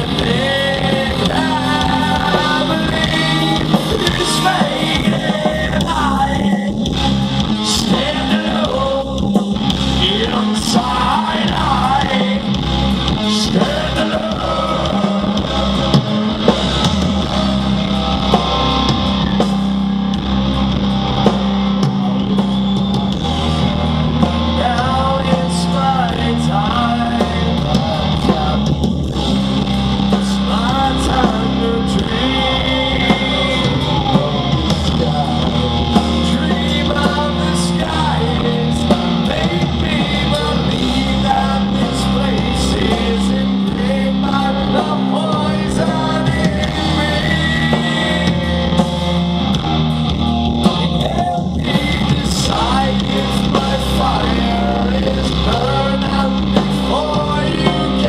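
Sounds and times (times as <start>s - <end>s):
male singer: 0.0s - 19.4s, 23.3s - 58.0s
live hard rock band: 0.0s - 58.0s.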